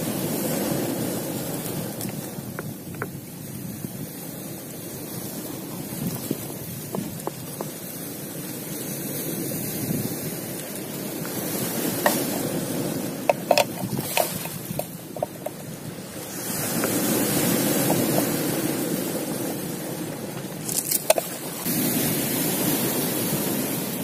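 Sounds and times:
surf over pebbles: 0:00.0 - 0:24.0
knife scraping and tapping board: 0:12.0 - 0:12.4, 0:13.3 - 0:15.6, 0:20.8 - 0:21.4.

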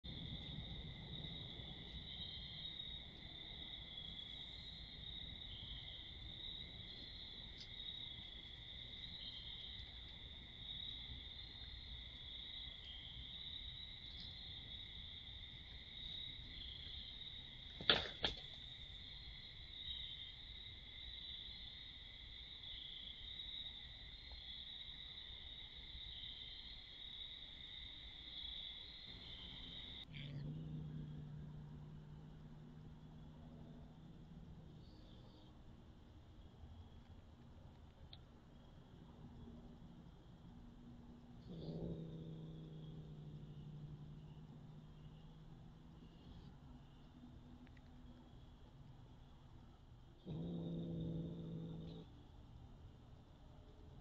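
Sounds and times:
night insects chorus: 0:00.1 - 0:37.4, 0:38.2 - 0:52.9
plastic decoration clattering onto paving: 0:17.8 - 0:18.6.

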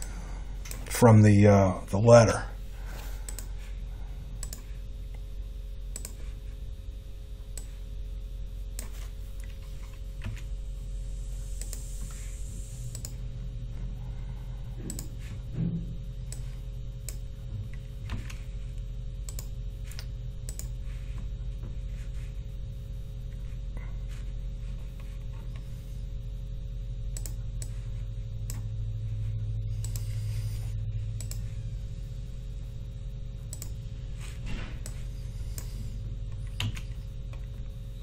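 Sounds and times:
low electrical hum: 0:00.0 - 0:38.0.

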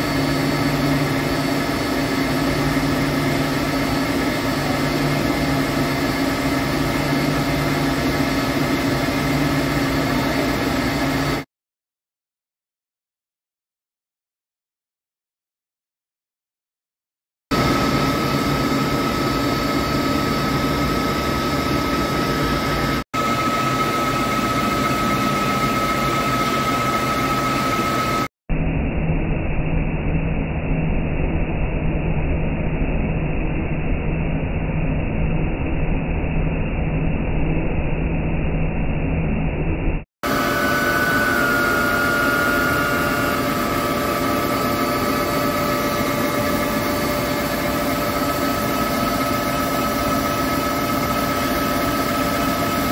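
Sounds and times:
lathe machine hum: 0:00.0 - 0:11.4, 0:17.6 - 0:28.3, 0:40.2 - 0:52.9
high cutting tone: 0:40.2 - 0:52.9.

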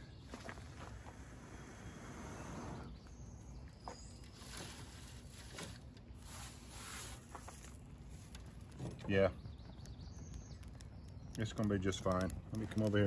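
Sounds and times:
dry pine needles rustling and crackling: 0:03.0 - 0:13.0.

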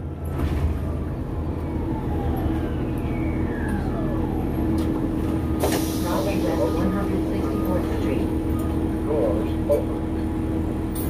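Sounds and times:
bus engine hum from inside: 0:00.0 - 0:11.0
faint falling whine: 0:00.6 - 0:05.6.

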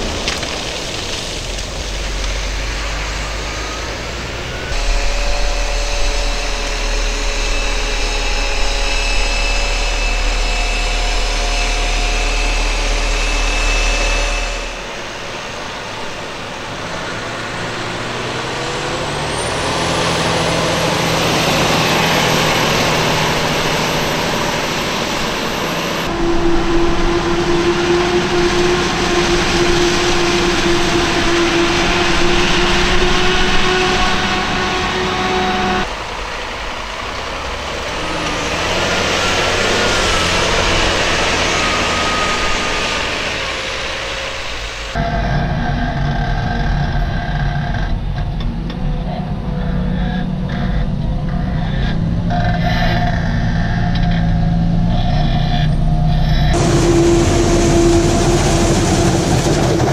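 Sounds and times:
diesel machinery running: 0:00.0 - 0:59.9
high machine whine: 0:01.9 - 0:59.9.

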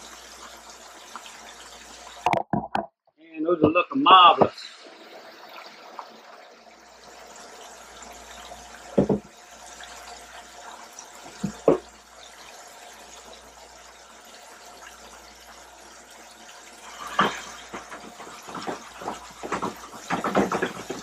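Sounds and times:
fish deep-frying in oil: 0:06.8 - 0:21.0.

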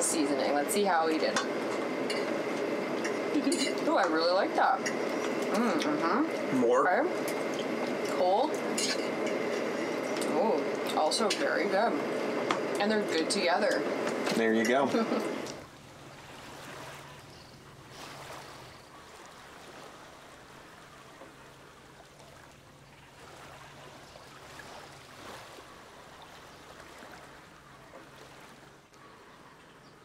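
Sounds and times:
steady low hum: 0:00.0 - 0:27.9
water lapping against dock: 0:00.0 - 0:30.0.

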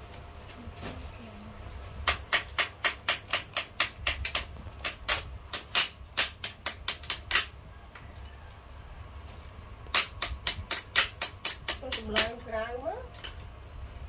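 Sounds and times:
hand tool rapid clicking: 0:02.1 - 0:07.5, 0:09.9 - 0:12.4.

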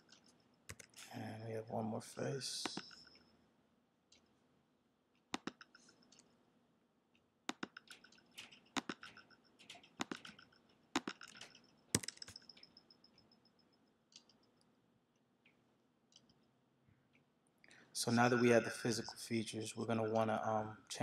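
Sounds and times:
mouse and keyboard clicks: 0:00.1 - 0:01.1, 0:05.4 - 0:06.3, 0:07.5 - 0:12.6
faint high ringing: 0:09.1 - 0:14.6, 0:18.0 - 0:20.8.

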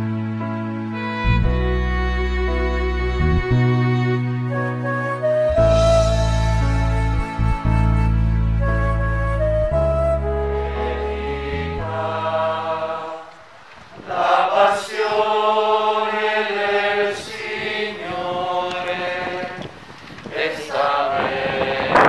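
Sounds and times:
held low instrumental note: 0:01.2 - 0:12.0
group singing a hymn: 0:10.6 - 0:22.0.

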